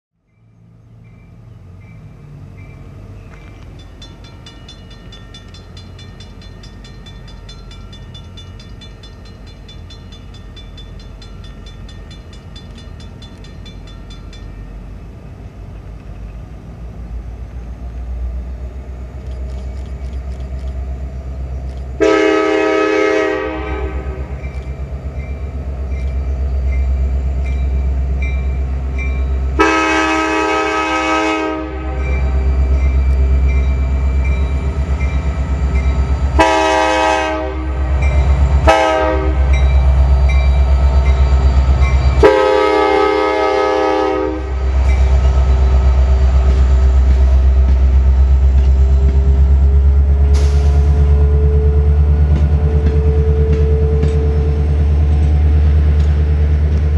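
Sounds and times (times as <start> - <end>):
locomotive engine rumble: 0.3 - 56.9
train horn blasts: 22.0 - 24.5, 29.5 - 32.7, 36.3 - 40.0, 41.8 - 44.8.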